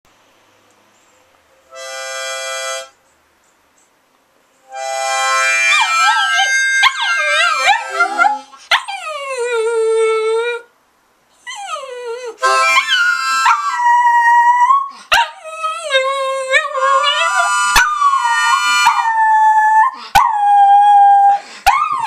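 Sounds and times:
harmonica chord: 1.7 - 3.0, 4.7 - 6.8, 12.4 - 13.3
dog howling: 5.7 - 10.6, 11.6 - 22.0.

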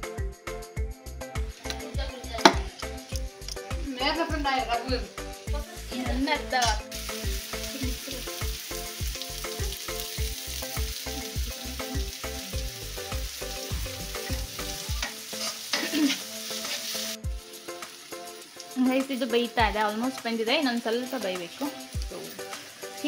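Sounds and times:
background music with steady beat: 0.0 - 23.0
chicken sizzling in a pot: 1.4 - 23.0.

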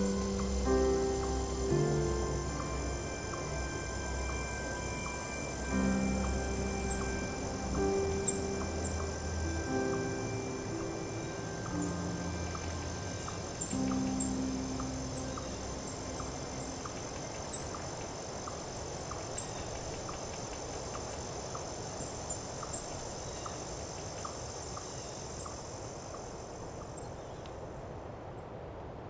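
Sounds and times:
low hum: 0.0 - 22.3
steady high hiss: 0.0 - 29.0.

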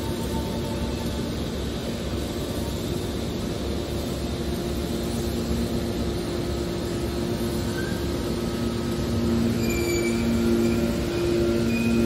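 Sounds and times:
baler machine droning: 6.8 - 12.0
brief high squeals: 9.6 - 12.0.

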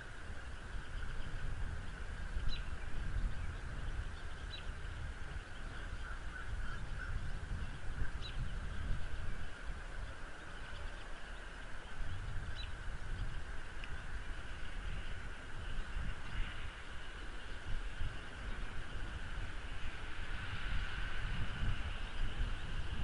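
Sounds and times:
steady hiss: 0.0 - 23.0
wind rumbling on microphone: 0.0 - 23.0
bird chirping: 0.4 - 17.6.

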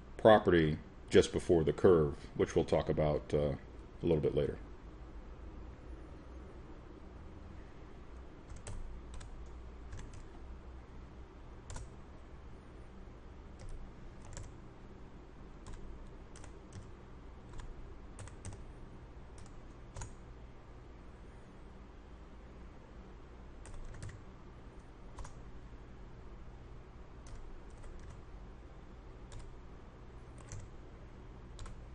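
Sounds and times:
low background hum: 0.0 - 31.9
keyboard keys clicking: 8.5 - 9.3, 9.9 - 10.3, 13.6 - 14.5, 17.5 - 18.6, 23.6 - 24.2, 27.3 - 28.2, 30.4 - 30.7.

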